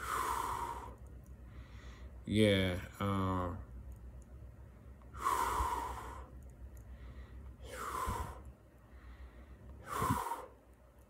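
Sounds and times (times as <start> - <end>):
man breathing heavily: 0.0 - 2.2, 5.1 - 10.7.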